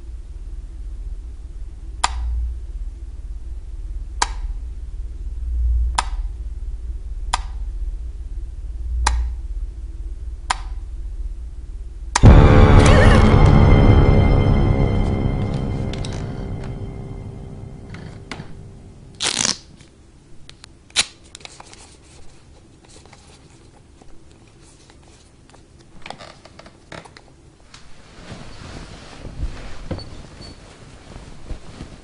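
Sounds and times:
bedding rustling: 0:27.8 - 0:32.0.

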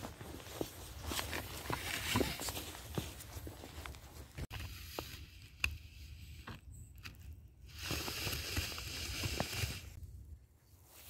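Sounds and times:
footsteps crunching in snow: 0:00.0 - 0:04.5.

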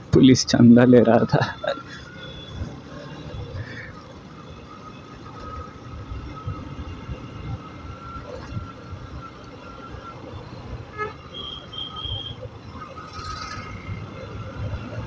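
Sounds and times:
motorcycle running: 0:11.7 - 0:15.0.

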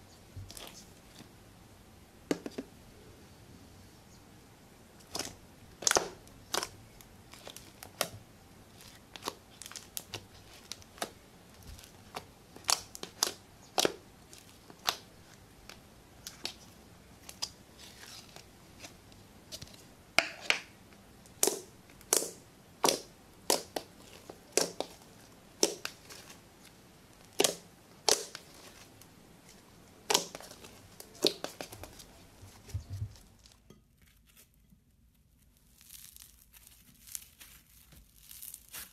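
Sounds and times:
slime popping and crackling: 0:05.0 - 0:20.7, 0:21.3 - 0:26.4, 0:27.2 - 0:32.2, 0:35.6 - 0:38.9.

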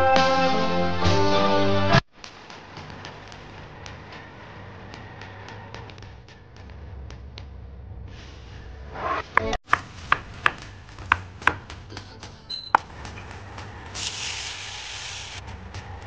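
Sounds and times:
knife chopping on wooden board: 0:09.4 - 0:13.2
chicken sizzling in hot oil: 0:14.0 - 0:15.4.

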